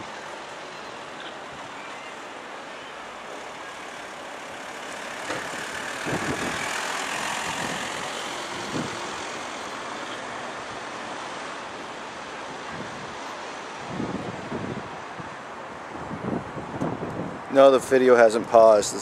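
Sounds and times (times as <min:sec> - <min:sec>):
outdoor background noise: 0:00.0 - 0:19.0
van driving past: 0:02.8 - 0:12.2.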